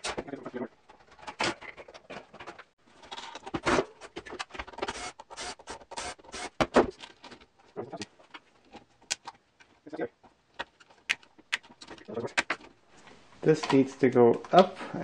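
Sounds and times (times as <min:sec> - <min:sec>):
plastic parts knocking and clicking: 0:06.6 - 0:12.8.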